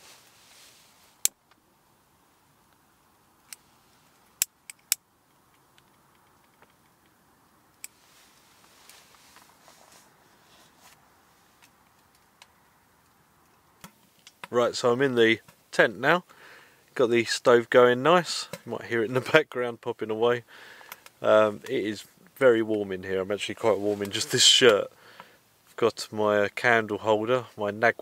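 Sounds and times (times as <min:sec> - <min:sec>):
wood fire crackling: 0:02.3 - 0:15.8, 0:20.5 - 0:25.3.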